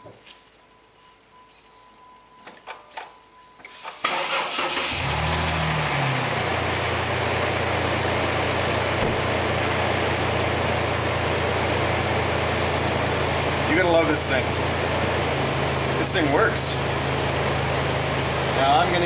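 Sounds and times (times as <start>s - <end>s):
car engine cranking and idling: 3.6s - 19.0s.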